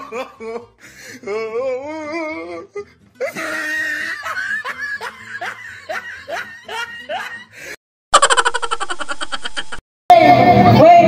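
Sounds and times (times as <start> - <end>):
person laughing: 0.0 - 0.8, 3.2 - 9.8.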